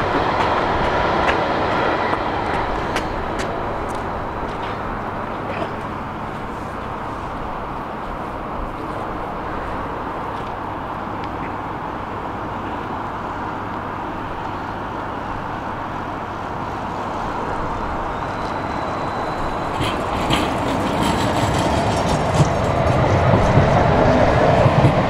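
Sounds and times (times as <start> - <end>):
tram rumbling: 0.0 - 25.0
faint high squeal: 16.8 - 20.5.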